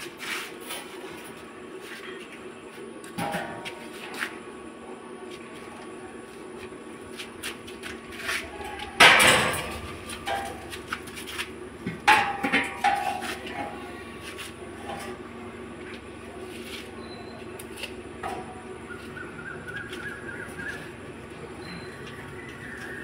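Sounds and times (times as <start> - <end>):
ringing metal clanks: 9.0 - 10.7.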